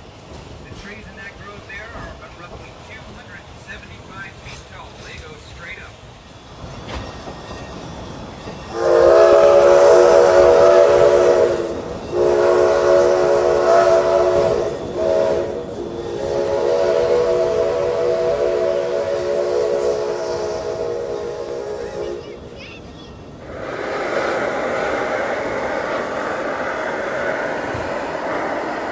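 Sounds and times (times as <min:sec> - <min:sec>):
steam whistle blasts: 0:08.7 - 0:22.2.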